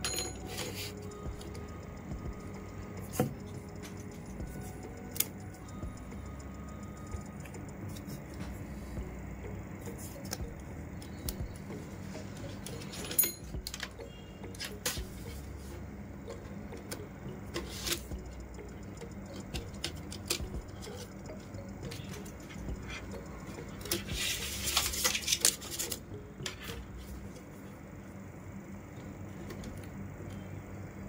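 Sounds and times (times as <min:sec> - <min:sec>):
light clicks and ticks: 0:00.9 - 0:11.8, 0:16.3 - 0:27.5.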